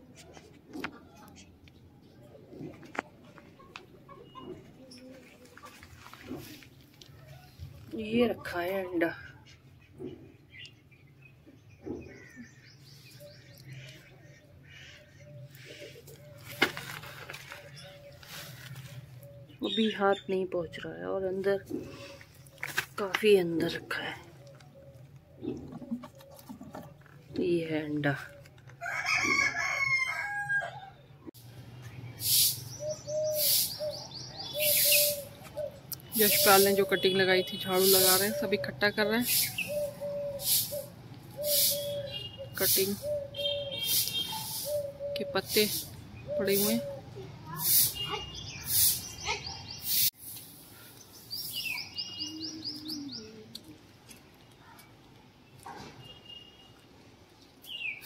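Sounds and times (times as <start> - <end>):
broom sweeping paving stones: 5.1 - 7.7, 15.6 - 19.2, 31.9 - 53.2
rooster crowing: 28.8 - 31.0
bird chirping: 31.8 - 50.1, 50.8 - 53.6.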